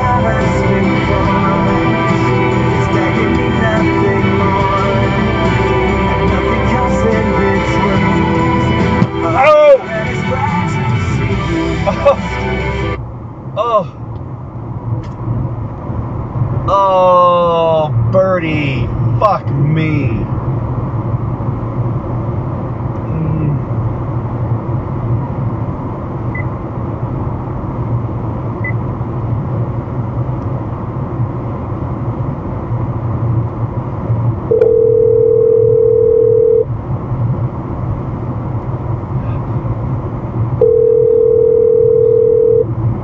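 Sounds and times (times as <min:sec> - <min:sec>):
car road and engine noise: 0:00.0 - 0:43.0
long electronic beeps: 0:34.5 - 0:36.6, 0:40.6 - 0:42.7.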